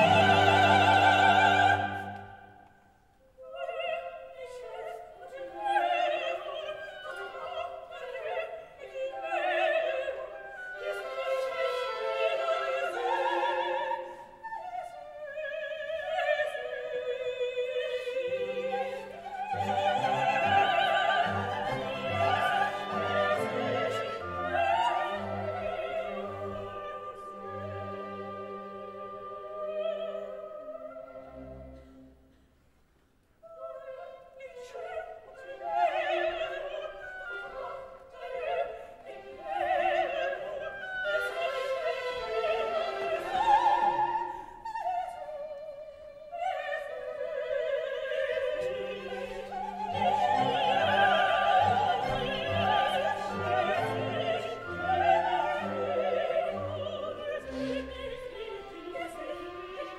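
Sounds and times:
orchestra playing: 0.0s - 2.2s, 19.5s - 30.0s, 30.8s - 32.4s, 49.6s - 59.9s
opera singing: 0.0s - 2.6s, 3.2s - 31.8s, 33.4s - 59.9s.

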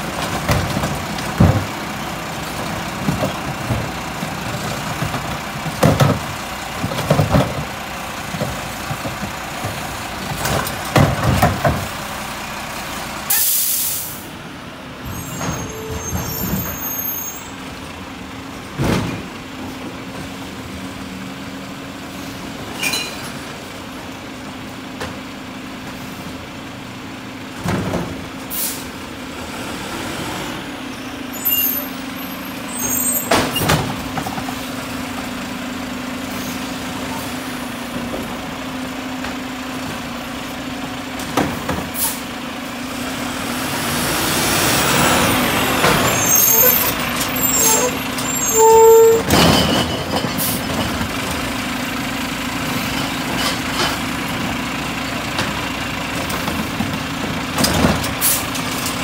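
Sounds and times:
truck engine drone: 0.0s - 59.0s
air-brake hisses: 13.3s - 14.3s, 28.5s - 28.9s.

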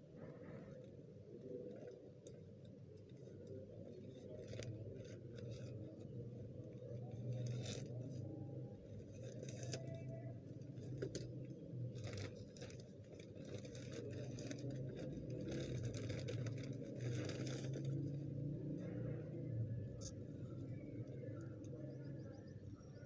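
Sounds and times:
steady low hum: 0.0s - 23.0s
plastic bag crinkling: 9.0s - 18.2s.

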